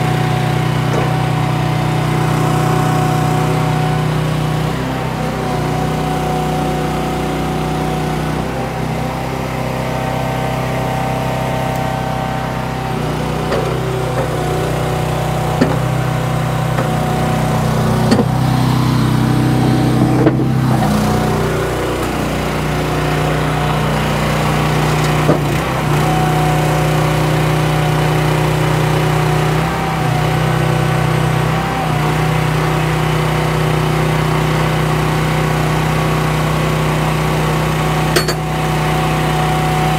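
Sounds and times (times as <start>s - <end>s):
engine running: 0.0s - 39.9s
sharp knocks: 15.6s - 15.9s.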